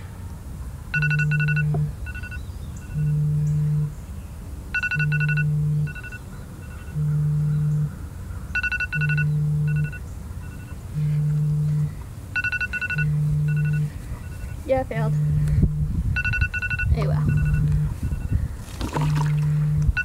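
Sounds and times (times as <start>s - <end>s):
low alarm beep: 0.9s - 3.9s, 4.8s - 7.9s, 8.6s - 18.4s, 19.2s - 20.0s
quick higher beeps: 1.0s - 3.9s, 4.8s - 7.8s, 8.6s - 18.4s.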